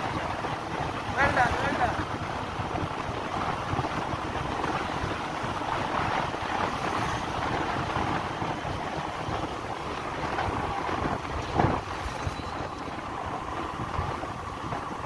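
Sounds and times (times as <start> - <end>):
road noise: 0.0 - 15.0
wind rush on microphone: 0.0 - 15.0.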